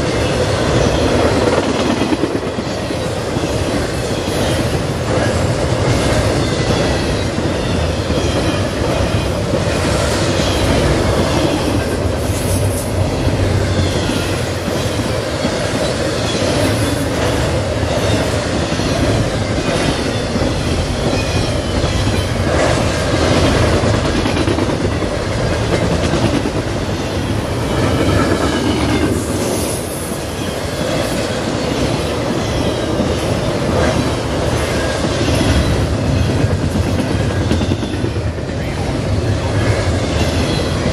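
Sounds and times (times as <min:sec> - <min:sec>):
clickety-clack of rail joints: 0:00.0 - 0:40.9
freight train wheels rumbling: 0:00.0 - 0:40.9.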